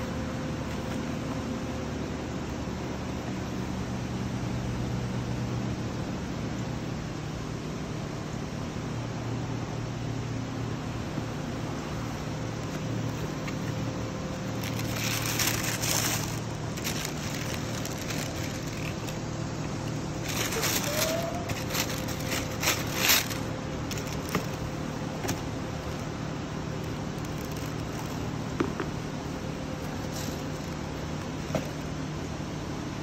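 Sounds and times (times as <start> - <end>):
steady background hum: 0.0 - 33.0
tissue paper rustling: 12.6 - 24.8, 29.9 - 30.8.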